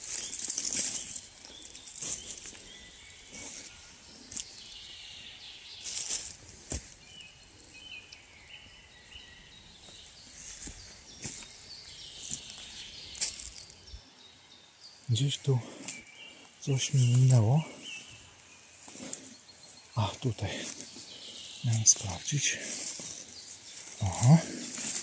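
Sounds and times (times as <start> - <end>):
twigs cracking: 0.0 - 4.6, 10.6 - 13.9
footsteps in dry leaves: 0.0 - 7.9, 9.7 - 13.9, 16.9 - 19.9, 20.5 - 25.0
faint bird chirps: 0.0 - 25.0.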